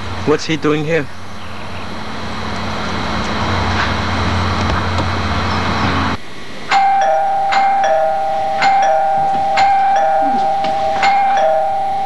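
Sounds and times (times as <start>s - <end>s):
steady held tone: 1.2s - 12.0s
electronic bell chimes: 6.7s - 12.0s.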